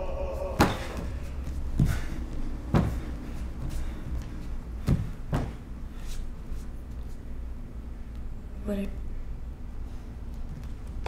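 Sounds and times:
low room hum: 0.0s - 11.0s
bare feet thudding on stage: 0.6s - 5.6s.

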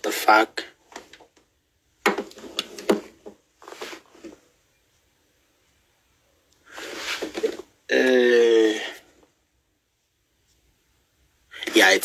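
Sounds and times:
phone handling rubbing and knocks: 2.0s - 4.4s
phone scraping: 6.7s - 7.7s.

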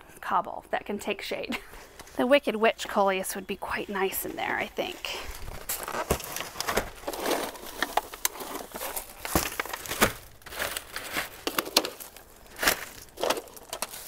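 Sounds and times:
plastic pots crinkling: 1.7s - 14.0s
leaves rustling: 3.7s - 14.0s.

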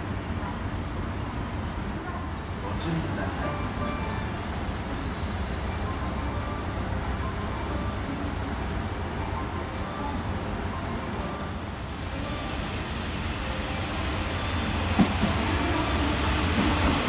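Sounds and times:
diesel train engines idling: 0.0s - 17.0s.

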